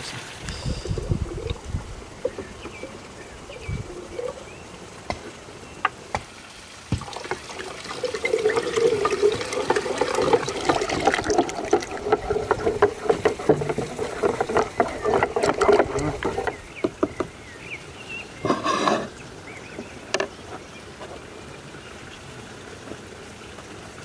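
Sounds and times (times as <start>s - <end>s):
water pouring into a pot: 6.8s - 16.6s.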